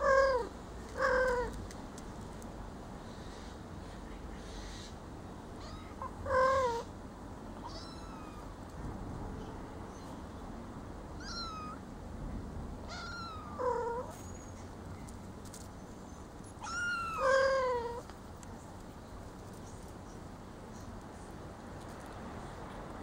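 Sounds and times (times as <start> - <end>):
kittens mewing: 0.0 - 1.6, 5.6 - 6.9, 7.6 - 8.6, 11.2 - 11.8, 12.8 - 14.2, 16.6 - 18.0
cat meowing: 5.6 - 6.9, 7.6 - 8.5, 11.2 - 11.8, 12.9 - 14.2, 16.6 - 18.0.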